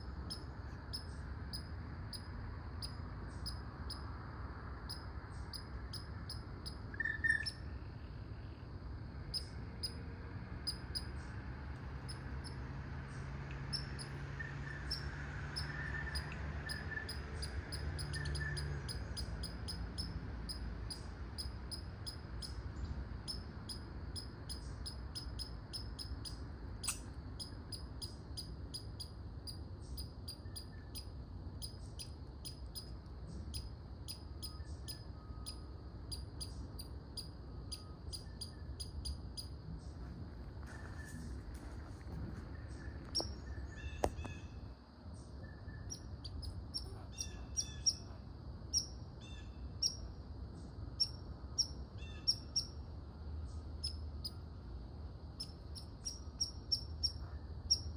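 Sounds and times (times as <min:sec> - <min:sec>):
small animal chirping: 0:04.9 - 0:07.7, 0:13.7 - 0:22.6, 0:23.3 - 0:39.5, 0:45.6 - 0:50.0, 0:51.0 - 0:52.8, 0:55.4 - 0:57.9.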